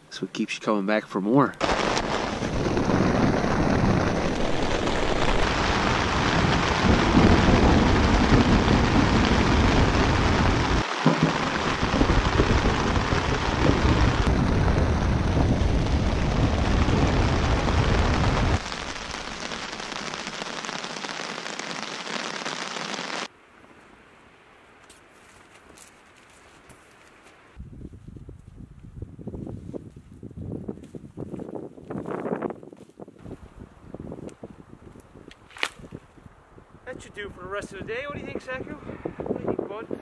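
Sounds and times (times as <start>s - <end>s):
heavy rain on tent: 1.6s - 23.3s.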